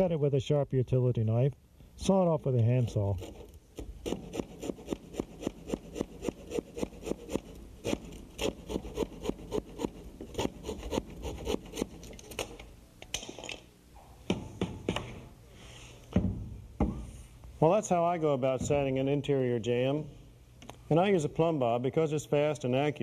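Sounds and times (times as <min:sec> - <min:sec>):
handsaw cutting wood: 0:03.2 - 0:12.0.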